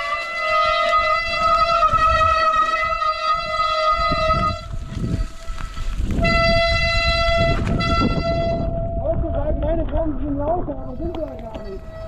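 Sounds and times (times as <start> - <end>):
bike disc brakes squealing: 0.8 - 8.0, 11.5 - 12.0.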